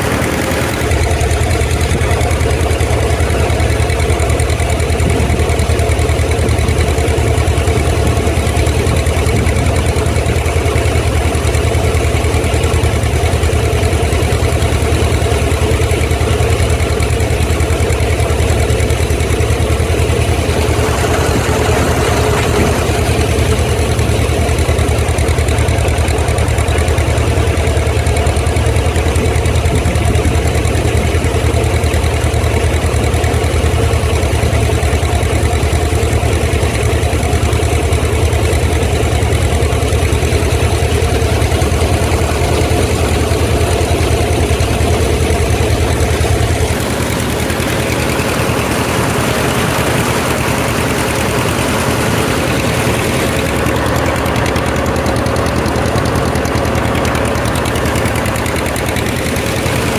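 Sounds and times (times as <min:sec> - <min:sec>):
combine threshing machinery: 0:00.0 - 0:02.0, 0:19.6 - 0:25.5
tractor engine running: 0:00.0 - 0:59.9.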